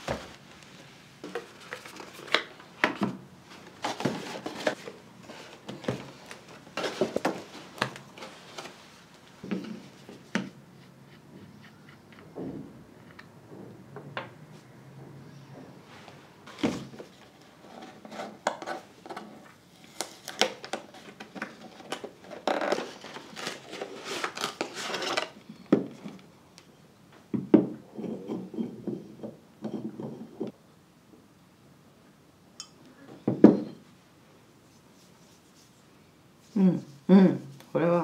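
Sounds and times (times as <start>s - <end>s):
packaging rustling: 19.8s - 25.4s.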